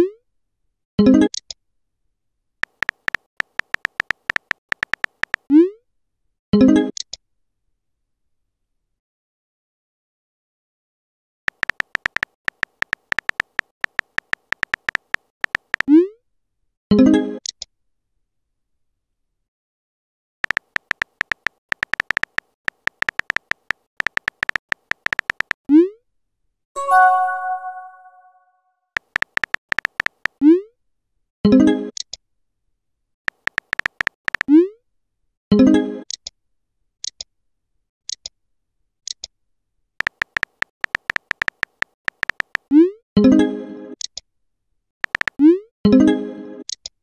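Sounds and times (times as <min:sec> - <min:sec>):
keyboard typing clicks: 0:02.6 - 0:05.5, 0:11.5 - 0:15.9, 0:20.4 - 0:25.6, 0:29.0 - 0:30.4, 0:33.3 - 0:34.5, 0:40.0 - 0:42.7, 0:45.0 - 0:45.4
bright chime: 0:26.8 - 0:28.4.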